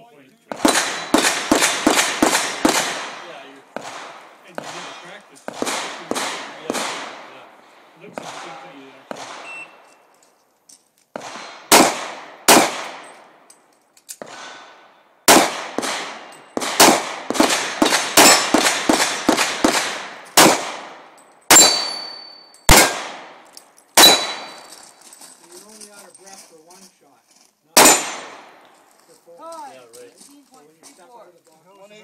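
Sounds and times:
handgun shots: 0.5 - 7.2, 8.2 - 9.6, 11.1 - 13.1, 15.3 - 23.4, 24.0 - 24.7, 27.8 - 28.6
steel targets clanging: 21.4 - 22.7, 24.0 - 24.8.

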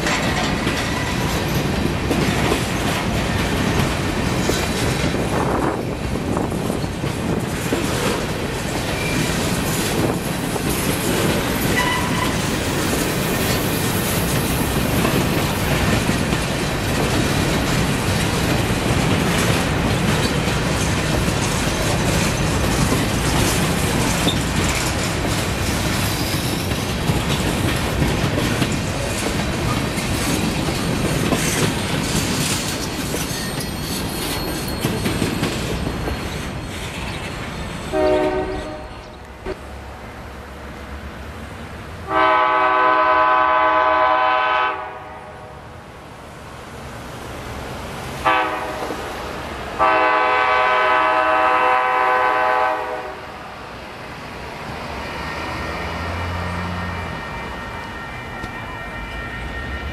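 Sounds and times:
freight train wheels clattering: 0.0 - 39.6.

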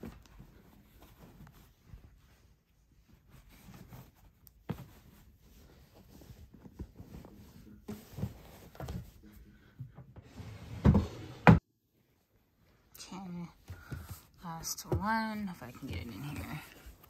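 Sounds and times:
clothes rustling: 0.0 - 9.6, 11.9 - 17.0
drawer knocks and thumps: 10.2 - 11.6.

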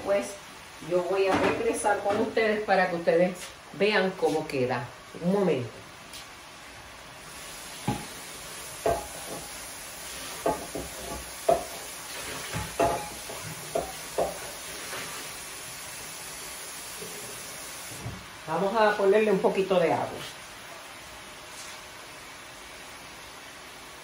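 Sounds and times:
chicken sizzling in a skillet: 7.2 - 18.0.

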